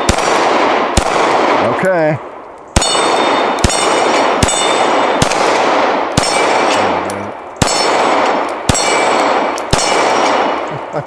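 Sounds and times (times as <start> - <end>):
pistol shots: 0.0 - 10.7
steel targets clanging: 2.8 - 5.0.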